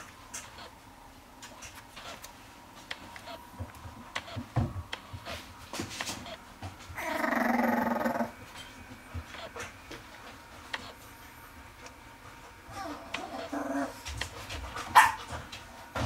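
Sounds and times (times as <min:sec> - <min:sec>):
puppy growling: 0:07.0 - 0:08.4, 0:12.7 - 0:14.1.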